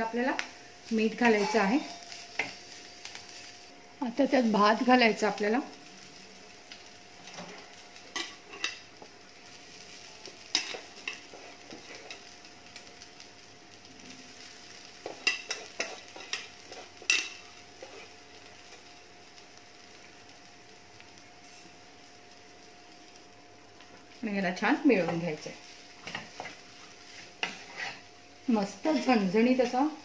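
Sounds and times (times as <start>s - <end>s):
faint frying sizzle: 0.0s - 30.0s
wooden spatula scraping metal pan: 1.1s - 2.6s, 26.0s - 28.1s.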